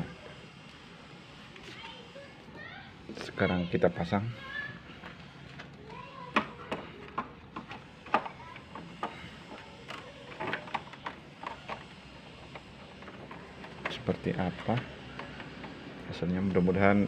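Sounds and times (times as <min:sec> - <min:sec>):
plastic parts clicking: 0:06.3 - 0:15.8.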